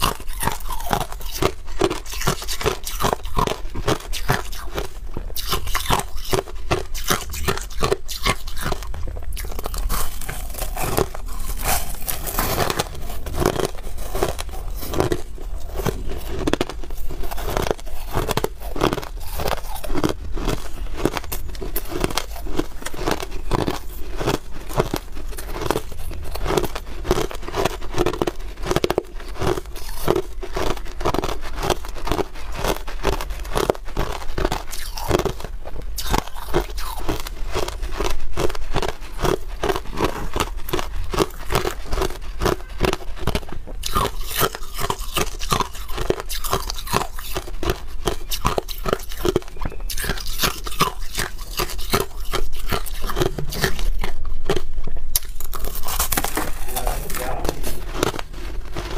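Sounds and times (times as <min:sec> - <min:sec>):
crushed ice being chewed: 0:00.0 - 0:58.9.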